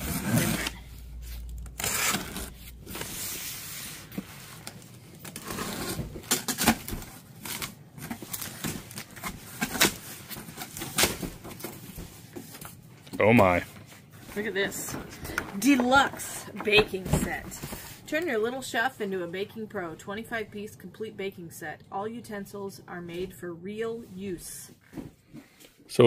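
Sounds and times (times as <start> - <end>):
cardboard tearing and scraping: 0.0 - 4.1, 5.2 - 11.7.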